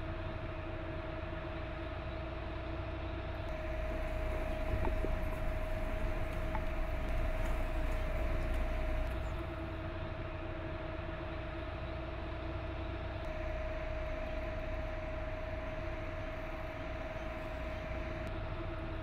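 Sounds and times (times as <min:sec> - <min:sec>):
armoured vehicle engine whine: 0:03.4 - 0:10.0, 0:13.0 - 0:19.0.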